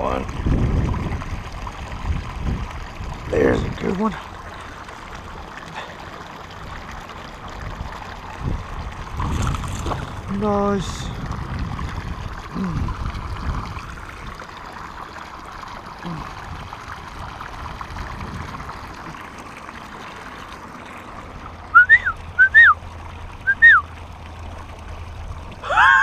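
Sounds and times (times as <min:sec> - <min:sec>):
water: 0:00.0 - 0:26.0
wind: 0:00.0 - 0:26.0
loud rising and falling whistles: 0:21.7 - 0:22.8, 0:23.5 - 0:23.9.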